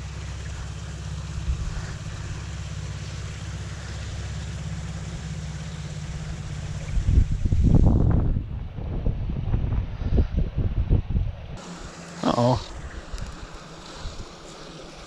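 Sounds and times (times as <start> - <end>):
wind buffeting microphone: 0.1 - 11.6.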